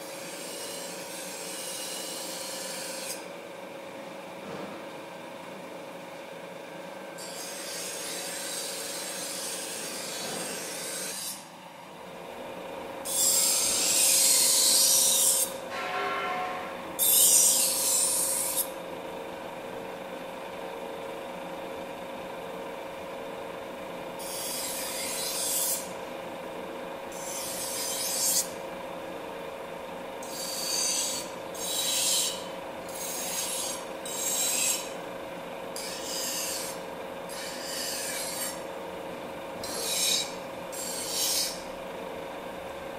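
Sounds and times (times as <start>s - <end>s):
grinding machine hum: 12.1s - 42.9s
knife grinding on wheel: 13.0s - 15.6s, 17.0s - 18.8s, 24.2s - 25.9s, 27.1s - 28.6s, 30.2s - 35.0s, 35.8s - 38.6s, 39.6s - 41.7s.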